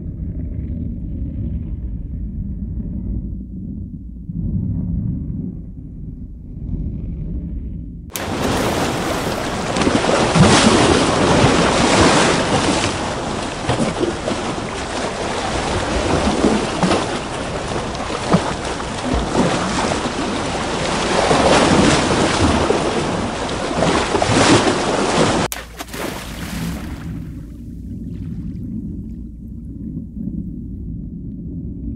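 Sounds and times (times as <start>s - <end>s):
ocean surf washing: 8.1s - 27.2s.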